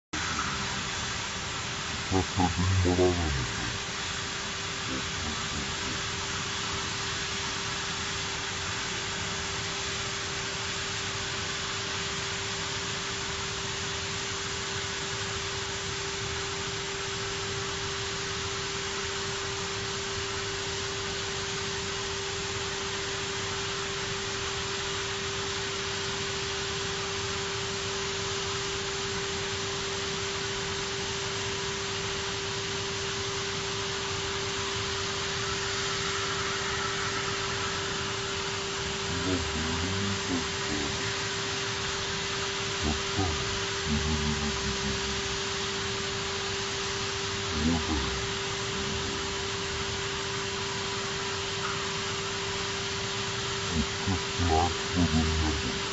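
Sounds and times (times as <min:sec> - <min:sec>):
steady mid-pitched tone: 0:00.0 - 0:08.0, 0:33.4 - 0:52.4, 0:53.5 - 0:55.9
cutting torch hissing: 0:00.2 - 0:10.2, 0:33.0 - 0:51.4, 0:53.5 - 0:55.9.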